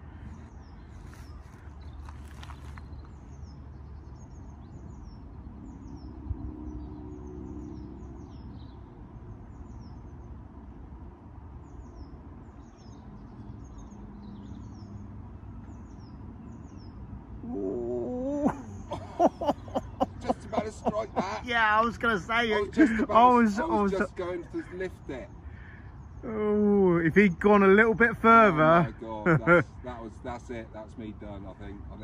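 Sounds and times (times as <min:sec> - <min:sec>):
low outdoor rumble: 0:00.0 - 0:08.7, 0:17.4 - 0:32.0
small birds chirping: 0:00.0 - 0:10.6, 0:11.5 - 0:32.0.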